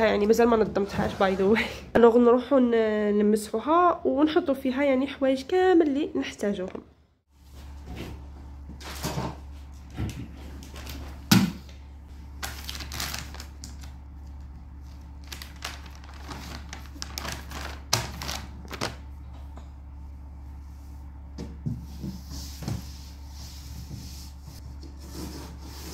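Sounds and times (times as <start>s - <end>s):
low steady hum: 0.0s - 25.9s
plastic wrapper crinkling: 12.3s - 19.1s.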